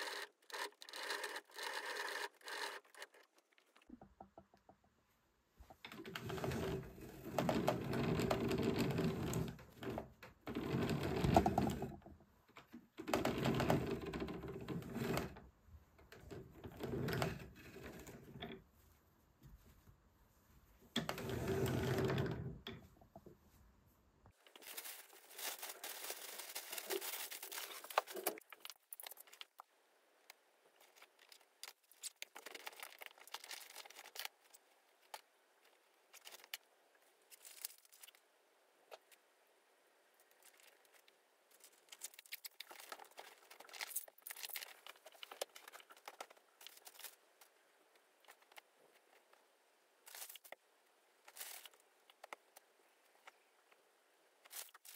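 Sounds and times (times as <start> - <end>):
rustling and crinkling: 0.5 - 39.3, 40.1 - 54.9.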